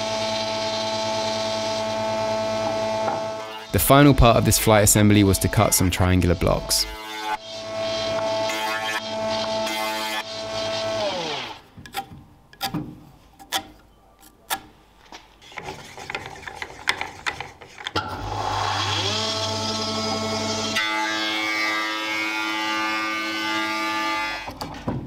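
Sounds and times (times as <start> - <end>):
power saw motor: 0.0 - 12.7, 17.2 - 24.5.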